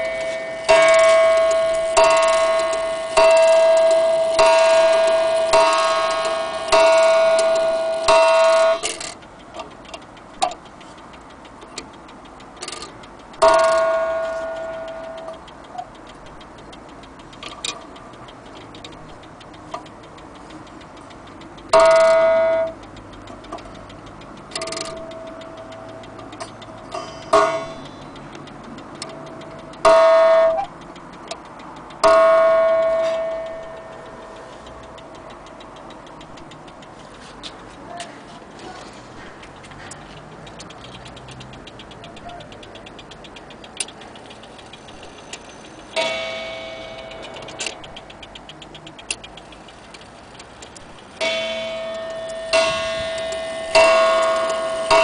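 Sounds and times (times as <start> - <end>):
clock gong strikes: 0.0 - 9.1, 13.4 - 15.4, 21.7 - 22.8, 29.8 - 30.7, 32.0 - 34.3, 46.0 - 48.0, 51.2 - 55.0
clock ticking faintly: 0.0 - 55.0.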